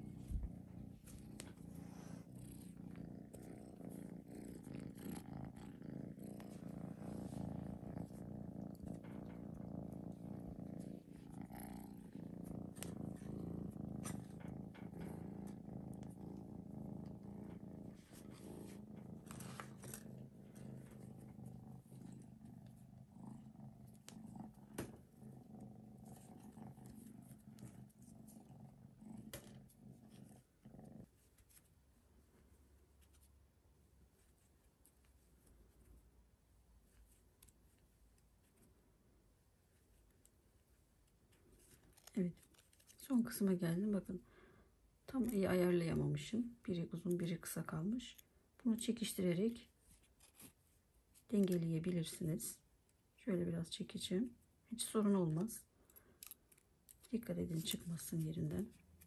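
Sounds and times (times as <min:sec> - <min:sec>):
kitten purring: 0:00.0 - 0:50.6, 0:53.4 - 0:59.0.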